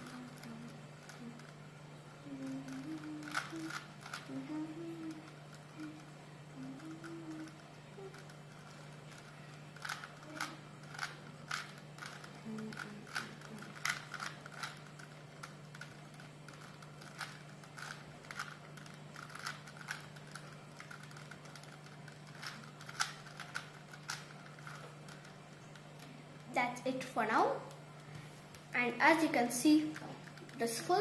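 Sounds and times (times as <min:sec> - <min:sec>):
plastic puzzle cube clicking: 0:02.7 - 0:04.3, 0:07.4 - 0:15.9, 0:16.5 - 0:25.3.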